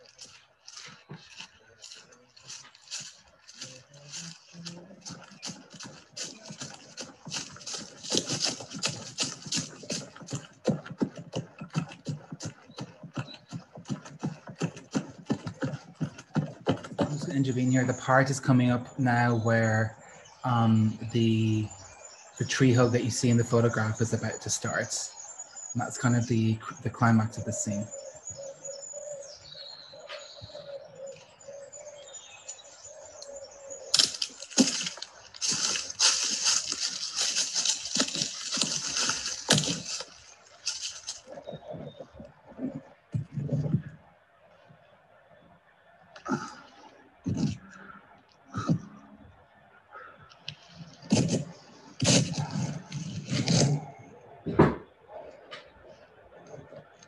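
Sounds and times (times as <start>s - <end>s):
dense crackling and rustling: 0.0s - 11.9s, 33.9s - 44.0s, 50.4s - 53.9s
faint bird chirps: 17.1s - 57.0s.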